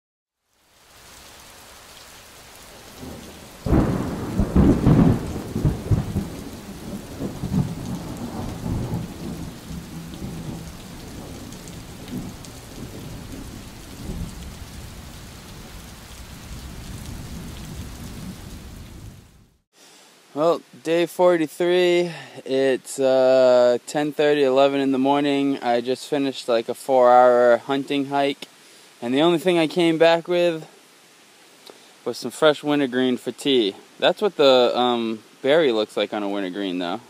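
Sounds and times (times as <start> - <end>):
steady rain: 0.4 - 37.0
thunder rumbling: 2.7 - 19.5.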